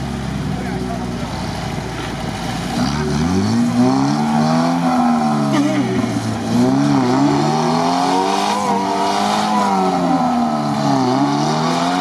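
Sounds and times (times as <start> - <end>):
off-road engines revving: 0.0 - 12.0.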